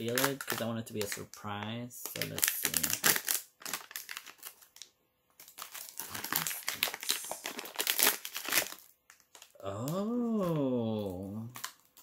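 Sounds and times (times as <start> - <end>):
packaging crinkling: 0.0 - 9.6, 11.5 - 12.0.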